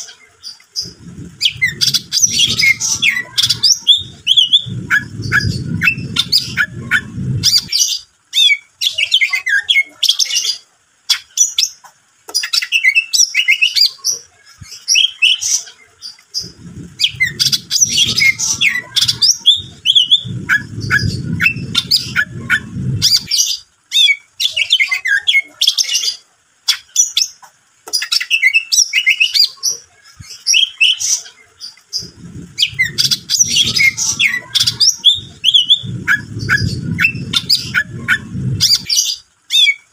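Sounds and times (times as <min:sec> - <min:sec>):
low rumble: 0:00.8 - 0:07.8, 0:16.4 - 0:23.4, 0:32.0 - 0:39.0
bird singing chirps and whistles: 0:00.8 - 0:10.4, 0:16.4 - 0:26.0, 0:32.0 - 0:39.9.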